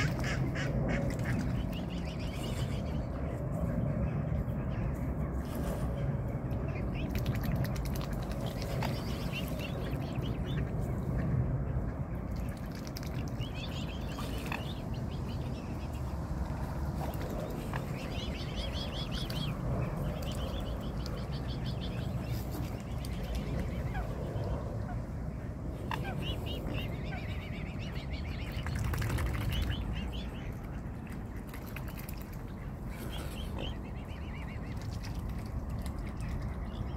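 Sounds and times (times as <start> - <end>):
low rumble: 0.0 - 36.9
swan cygnets peeping: 17.0 - 24.9, 25.7 - 36.9.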